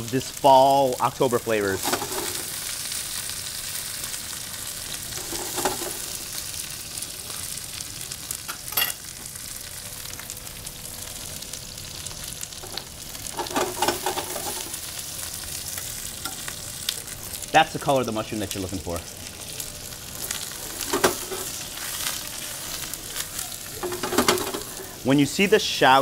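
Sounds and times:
food sizzling in butter: 0.0s - 26.0s
tongs clattering on pan: 1.8s - 2.6s, 5.1s - 6.2s, 8.5s - 9.1s, 12.6s - 14.8s, 20.2s - 21.7s, 23.7s - 24.8s.

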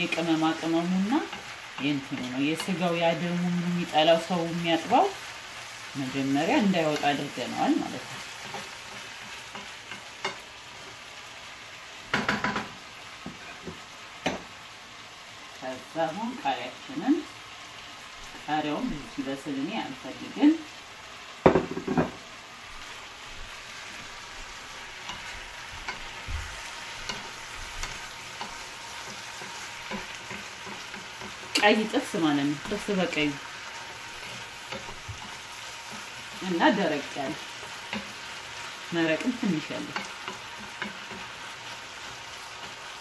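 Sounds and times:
food sizzling in a frying pan: 0.0s - 43.0s
wooden spatula scraping a pan: 13.2s - 13.9s, 23.6s - 43.0s.

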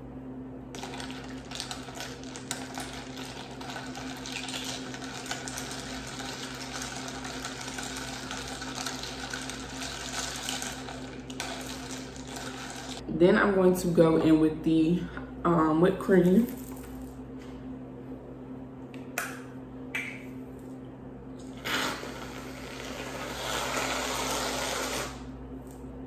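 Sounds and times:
liquid swirling: 0.8s - 13.0s.

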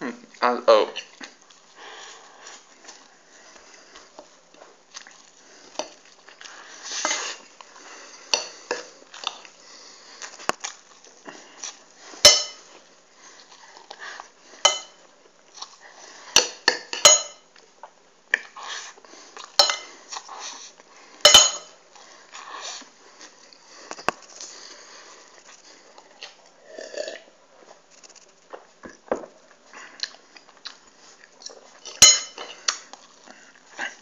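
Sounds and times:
chewing: 1.0s - 12.0s, 15.5s - 16.6s, 21.9s - 34.0s
cutlery clinking on plate: 12.2s - 12.7s, 14.6s - 15.0s, 16.4s - 17.5s, 19.6s - 19.9s, 21.2s - 21.8s, 31.9s - 32.6s.

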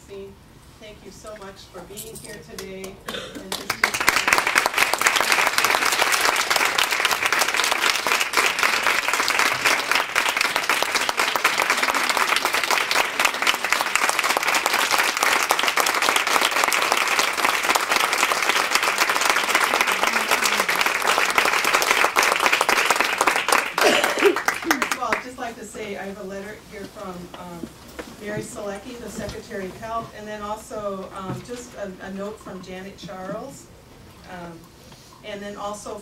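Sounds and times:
audience applauding: 3.1s - 25.2s.

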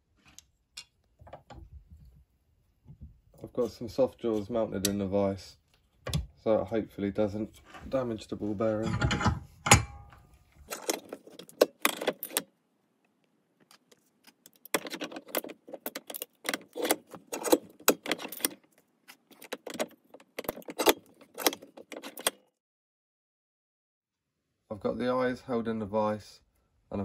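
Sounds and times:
metallic clicks and clinks: 10.7s - 12.4s, 14.4s - 22.4s.

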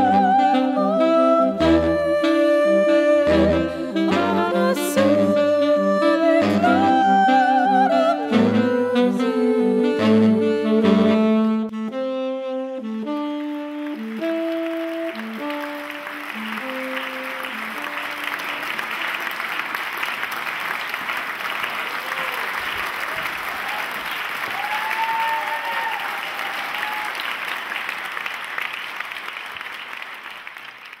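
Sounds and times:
audience applauding: 13.2s - 31.0s
audience calls: 14.4s - 30.1s.

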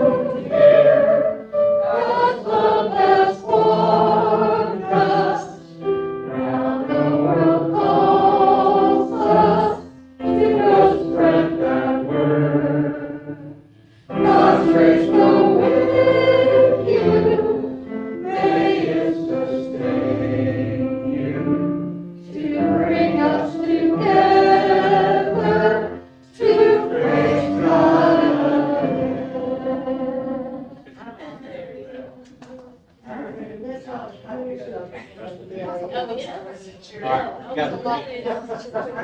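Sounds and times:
congregation singing: 0.0s - 31.2s.

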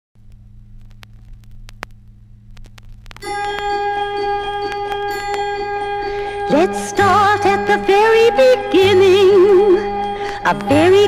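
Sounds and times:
low steady hum: 0.2s - 11.0s
vinyl surface crackle: 0.2s - 11.0s
song introduction music: 3.1s - 11.0s.

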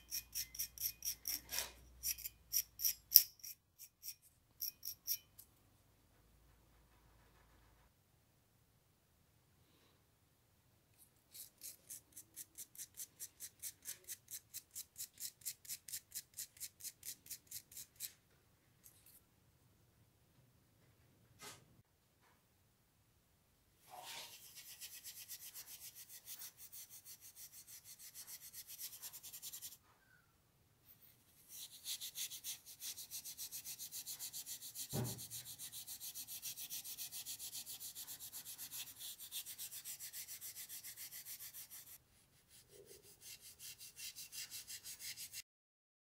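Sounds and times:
steel wool scrubbing metal: 0.0s - 5.2s, 31.4s - 42.0s
knock: 34.9s - 35.3s.

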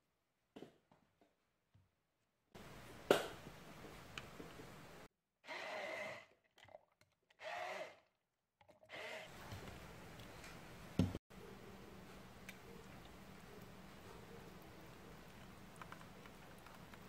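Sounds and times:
immersion blender pureeing: 5.4s - 9.8s.

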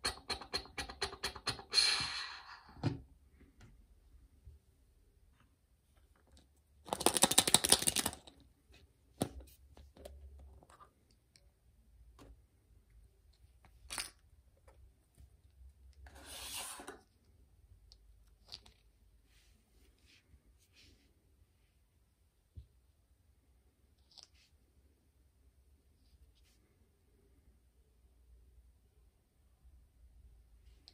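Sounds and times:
plastic toy egg being opened: 6.9s - 8.3s.

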